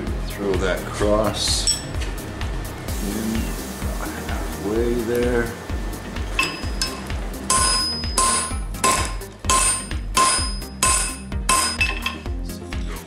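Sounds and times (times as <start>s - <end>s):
hammer striking steel on anvil: 6.4s - 12.2s.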